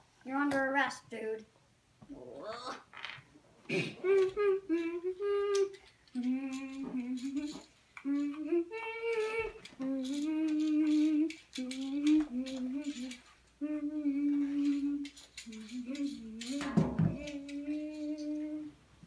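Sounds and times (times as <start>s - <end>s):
boy humming held notes: 3.7s - 18.8s.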